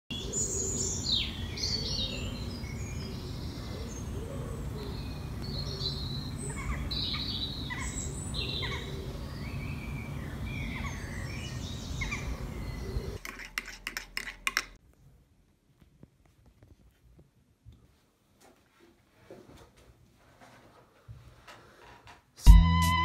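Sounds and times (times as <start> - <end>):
birds chirping: 0.1 - 13.2
low background noise: 0.1 - 22.4.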